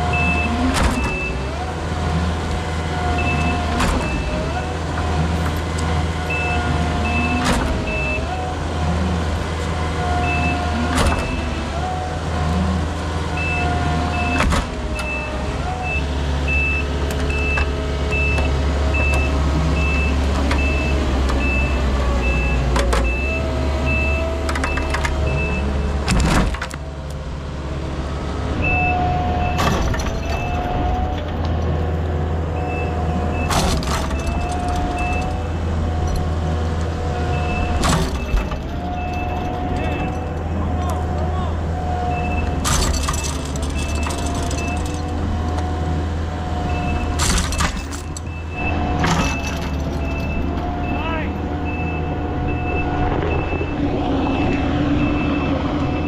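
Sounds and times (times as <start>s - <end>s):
track loader engine running: 0.0s - 56.0s
back-up alarm beeping: 48.2s - 56.0s.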